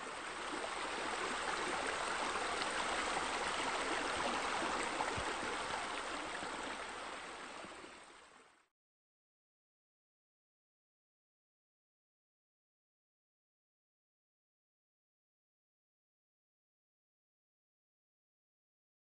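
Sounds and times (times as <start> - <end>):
flowing splashing water: 0.0 - 8.4.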